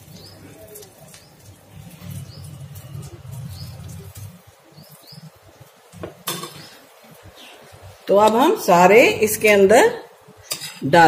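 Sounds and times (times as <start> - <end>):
bird chirping: 0.0 - 8.0
batter frying in oil: 0.0 - 11.0.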